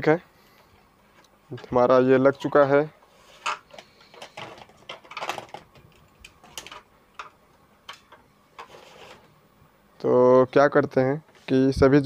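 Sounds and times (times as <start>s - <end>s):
wires rustling: 1.0s - 9.4s.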